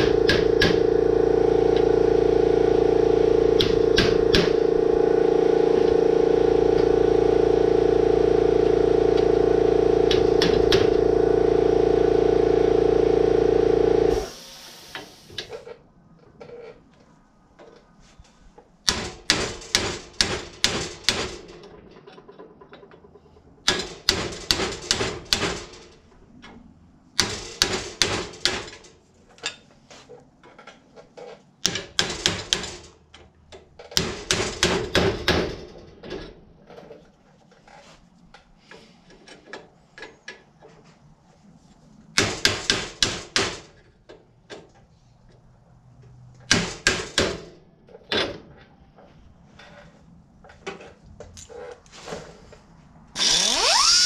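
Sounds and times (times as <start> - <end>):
hammer striking metal: 0.0 - 0.9, 3.6 - 4.8.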